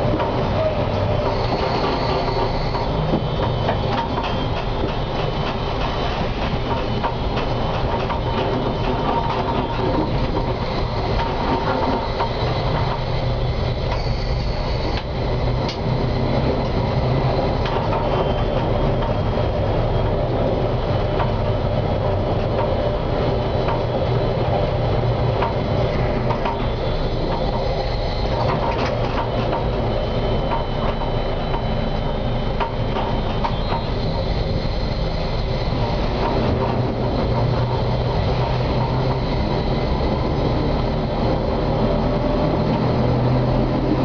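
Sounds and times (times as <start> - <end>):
tram wheels and motors: 0.0 - 44.0
faint high squeal: 0.4 - 5.4, 12.0 - 15.4, 16.1 - 20.0, 25.8 - 35.8.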